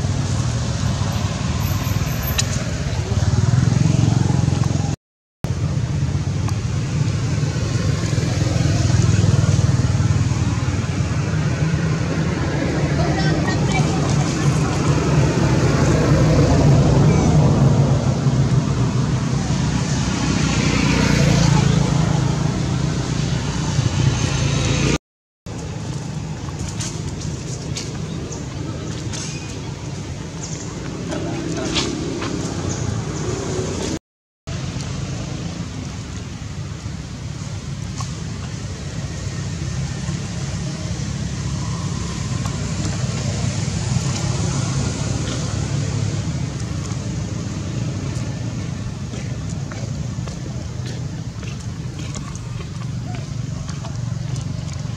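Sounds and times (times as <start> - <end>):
low outdoor rumble: 34.5 - 54.9
constant low rumble: 45.1 - 54.9.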